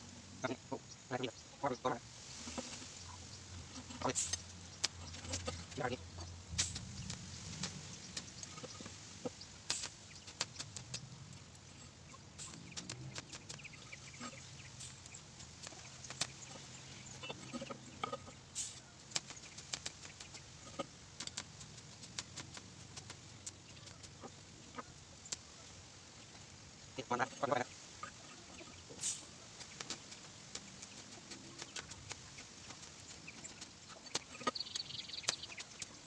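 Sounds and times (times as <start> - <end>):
sharp clicks and crackles: 6.5 - 8.8, 9.7 - 11.6, 12.4 - 13.8, 19.1 - 24.2.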